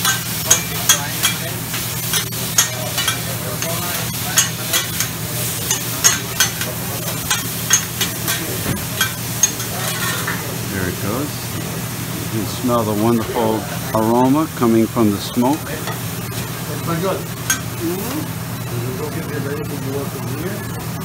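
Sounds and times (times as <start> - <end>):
metal spatulas clacking on griddle: 0.0 - 1.5, 2.1 - 10.4
food sizzling: 0.0 - 21.0.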